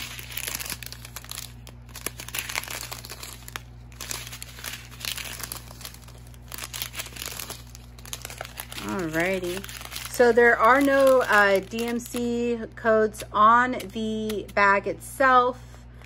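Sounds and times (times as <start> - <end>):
plastic bag crinkling: 0.0 - 12.8.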